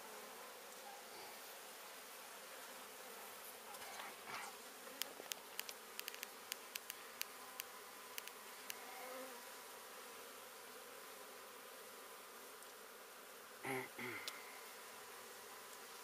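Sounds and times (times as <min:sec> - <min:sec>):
honey bees buzzing: 0:00.0 - 0:16.0
sharp ticks: 0:05.0 - 0:08.8.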